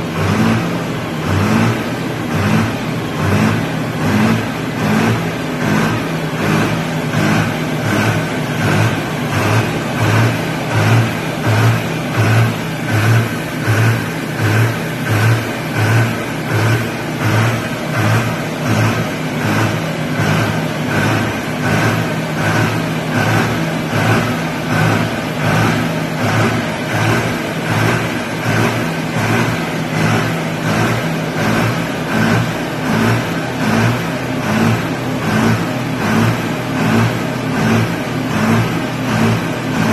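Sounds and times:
tractor diesel engine surging: 0.0 - 39.9.

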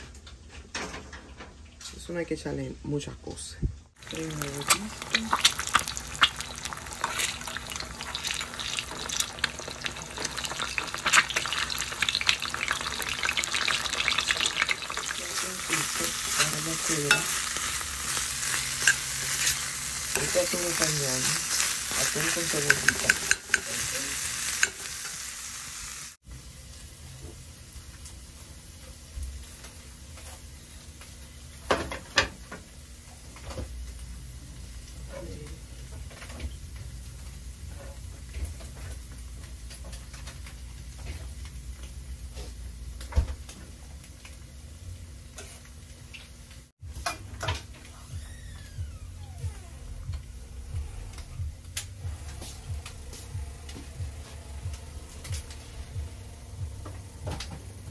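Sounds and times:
metal spatula stirring: 4.0 - 25.3
hot oil sizzling in a skillet: 4.0 - 42.6.

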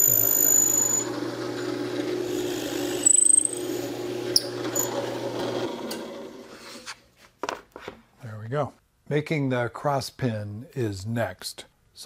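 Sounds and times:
drill bit squeal: 0.0 - 5.1
drill press motor hum: 0.0 - 6.5.

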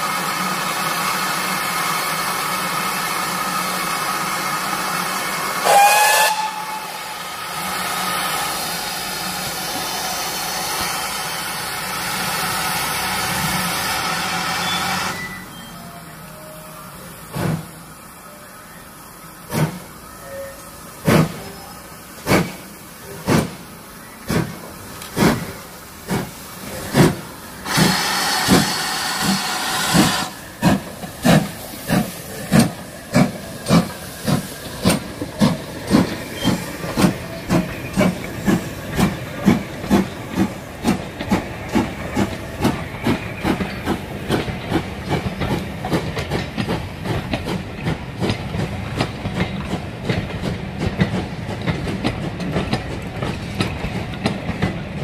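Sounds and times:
steam locomotive hissing: 0.0 - 55.0
steam whistle: 5.6 - 7.2.

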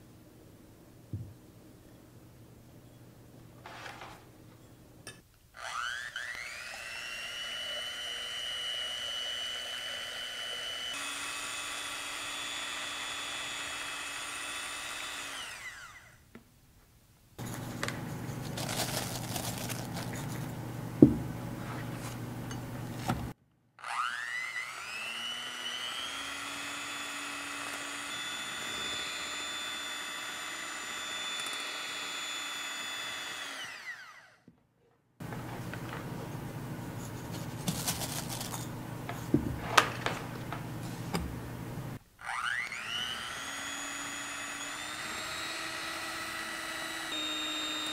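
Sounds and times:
electric hand mixer whining: 5.6 - 16.2, 23.8 - 34.4, 42.2 - 47.9
rough rustling noise: 17.4 - 20.5, 37.2 - 38.7.

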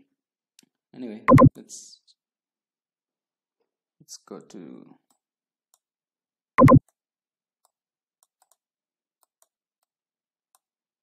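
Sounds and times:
computer mouse clicks: 6.6 - 7.0.

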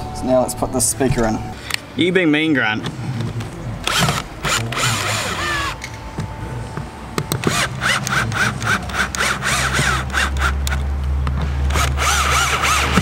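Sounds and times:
cordless drill driving screws: 7.4 - 10.6, 11.7 - 13.0.

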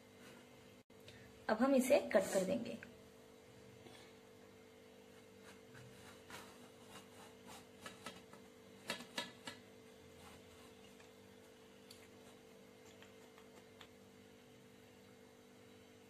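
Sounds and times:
faint steady hum: 0.0 - 16.0
knife scraping through cake: 5.0 - 8.3, 10.1 - 11.1.

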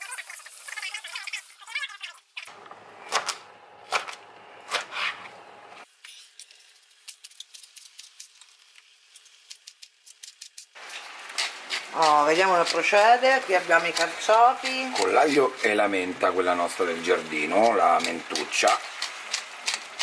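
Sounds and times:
knife cutting on cutting board: 3.1 - 5.4.

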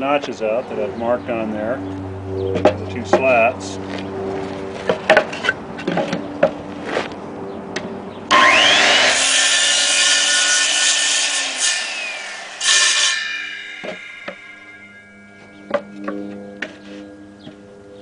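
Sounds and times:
circular saw cutting wood: 8.3 - 18.0.

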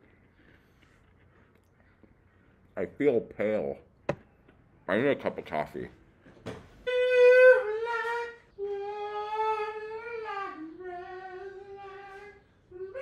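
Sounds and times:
man singing long wordless notes: 6.8 - 13.0.

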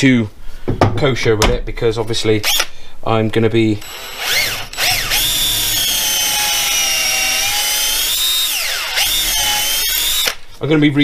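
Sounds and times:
cordless drill motor whining: 3.8 - 10.4.

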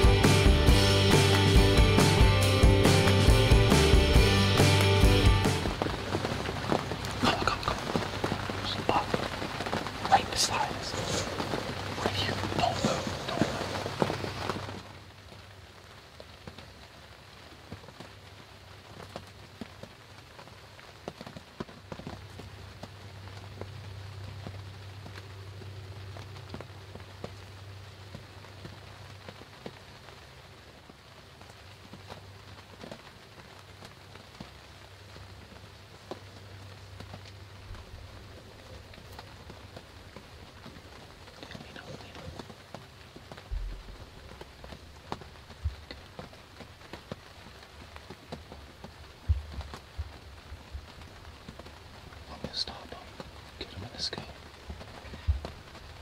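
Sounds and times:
raindrops ticking close by: 0.0 - 56.0
steady rain falling: 0.0 - 56.0
low thumps: 43.5 - 44.4.

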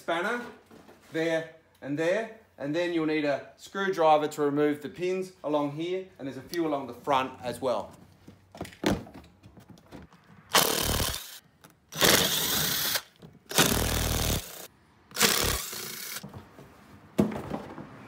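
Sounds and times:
power driver spinning: 10.5 - 16.2.

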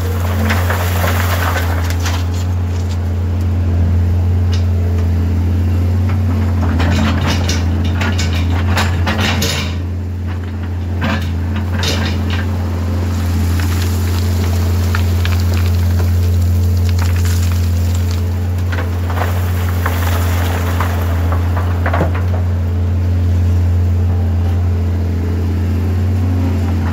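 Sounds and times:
rock clattering: 0.0 - 3.1, 6.2 - 22.8
diesel engine running: 0.0 - 26.9.

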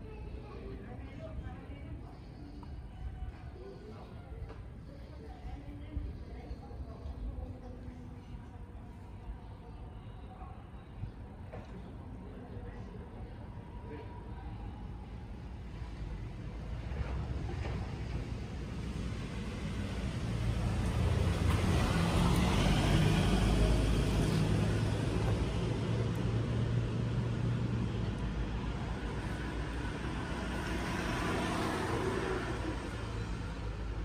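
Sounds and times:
passing motor vehicles rumble: 15.6 - 34.0.

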